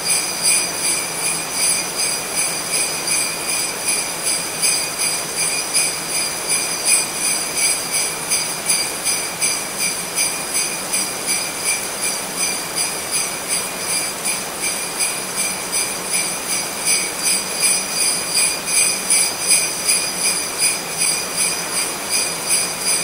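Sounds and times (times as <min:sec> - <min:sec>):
sleigh bells jingling: 0:00.0 - 0:23.0.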